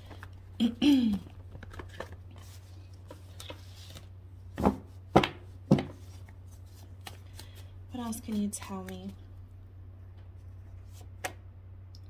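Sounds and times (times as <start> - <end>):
cards being shuffled: 1.1 - 9.2
cards knocking on table: 4.6 - 6.0.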